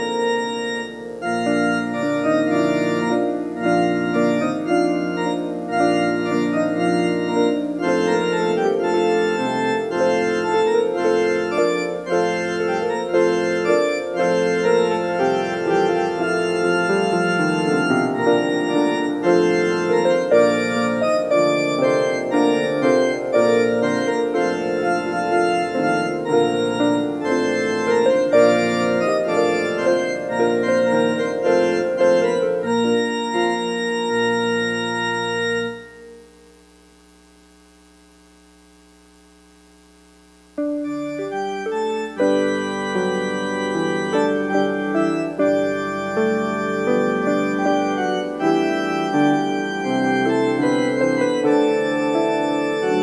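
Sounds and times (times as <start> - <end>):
church organ playing chords: 0.0 - 36.8, 40.6 - 53.0.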